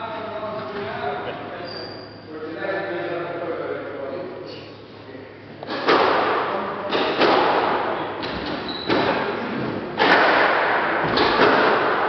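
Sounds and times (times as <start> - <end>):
squash ball hits echoing: 5.6 - 12.0.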